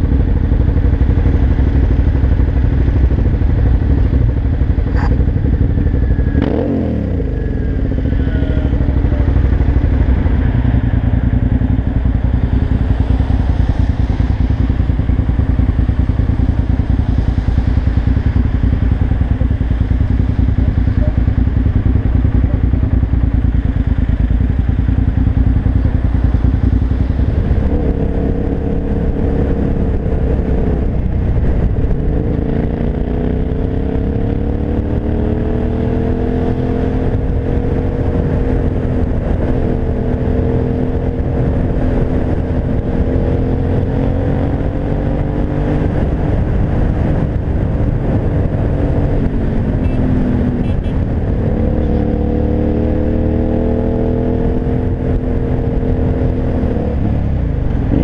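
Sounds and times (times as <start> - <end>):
motorcycle engine idling and revving: 0.0 - 58.0
wind noise: 24.9 - 58.0.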